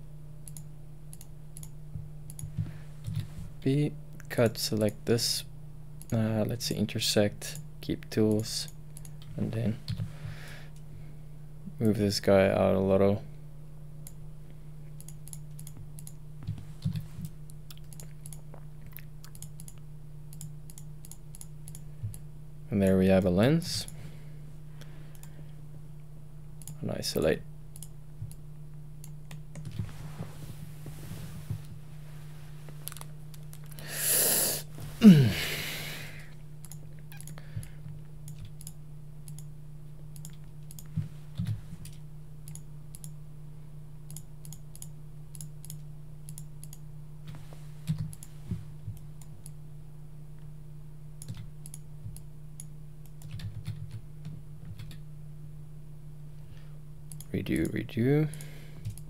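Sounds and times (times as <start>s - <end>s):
low electrical hum: 0.0s - 59.0s
keyboard and mouse clicks: 15.0s - 22.2s, 32.8s - 33.8s, 36.6s - 37.4s, 38.3s - 39.5s, 40.2s - 43.2s, 51.2s - 55.0s.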